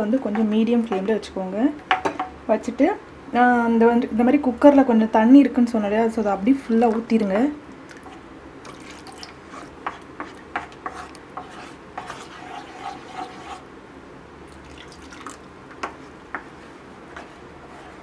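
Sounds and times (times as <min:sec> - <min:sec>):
spatula scraping thick puree: 0:09.5 - 0:13.6.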